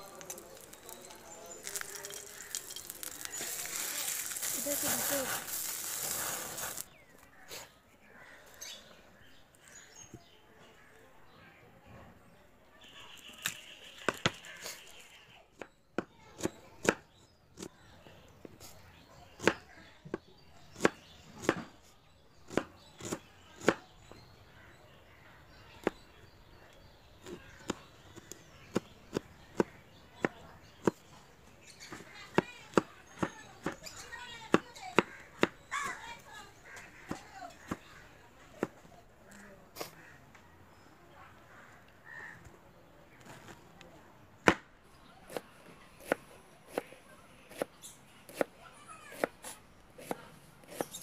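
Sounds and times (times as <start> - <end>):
knife chopping on wooden board: 22.5 - 23.8, 46.0 - 46.9, 47.5 - 47.7, 48.3 - 48.5, 49.1 - 51.0.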